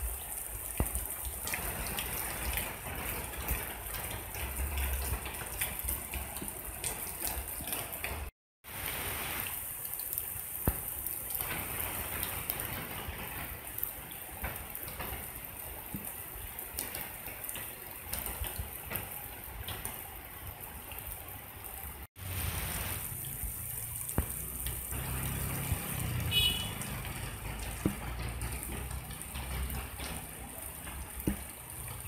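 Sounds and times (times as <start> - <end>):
rain falling: 0.0 - 32.0
rainwater running over ground: 0.0 - 32.0.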